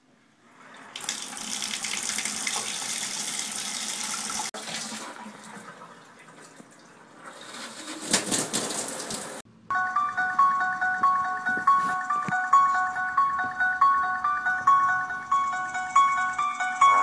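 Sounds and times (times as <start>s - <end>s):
tap running water into bathtub: 1.0s - 5.7s.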